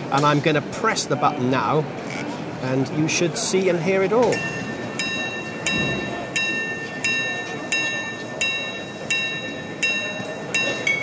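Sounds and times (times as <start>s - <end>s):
clock striking on gong: 4.3s - 11.0s.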